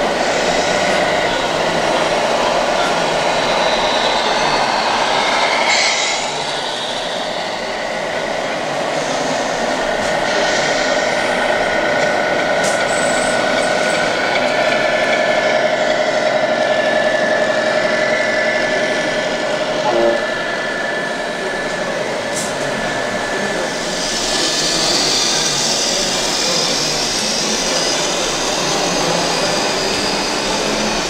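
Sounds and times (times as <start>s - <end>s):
short tone: 19.8s - 20.4s.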